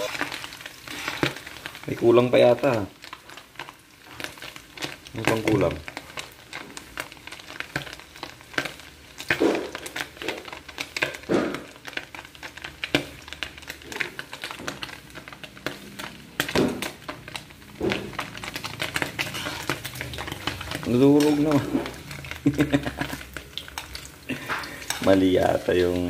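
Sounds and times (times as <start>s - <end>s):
food frying in hot oil: 0.0s - 26.0s
metal spoon scraping pan: 17.9s - 22.4s, 23.6s - 26.0s.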